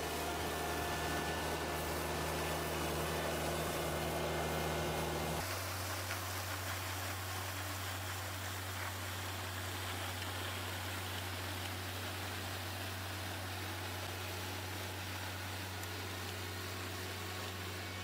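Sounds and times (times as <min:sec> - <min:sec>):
tractor diesel engine running: 0:00.0 - 0:05.4.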